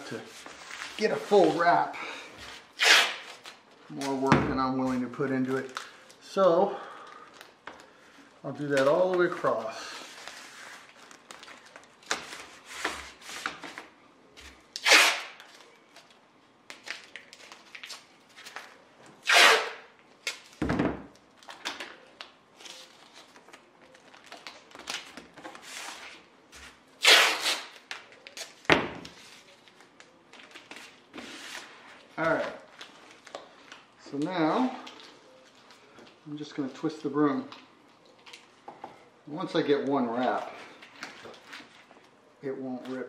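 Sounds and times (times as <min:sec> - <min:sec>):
tape and plastic film rustling: 0:00.0 - 0:01.8, 0:02.4 - 0:38.7, 0:39.7 - 0:43.0
tape ripping off roll: 0:02.7 - 0:03.6, 0:14.7 - 0:15.6, 0:19.2 - 0:20.7, 0:27.0 - 0:29.3.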